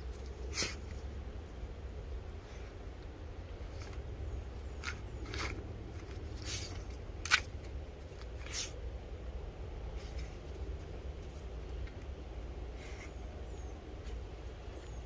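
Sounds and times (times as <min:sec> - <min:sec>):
puppy sniffing: 0:04.7 - 0:07.1, 0:08.2 - 0:08.8.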